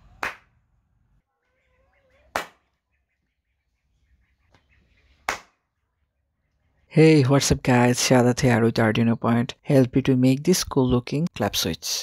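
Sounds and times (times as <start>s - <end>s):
sharp hand claps: 0.0s - 0.5s, 2.3s - 2.7s, 5.2s - 5.6s.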